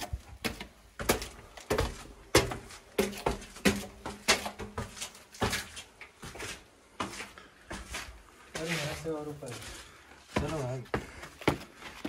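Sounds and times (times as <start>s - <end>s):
footsteps on stone stairs: 0.0s - 12.0s.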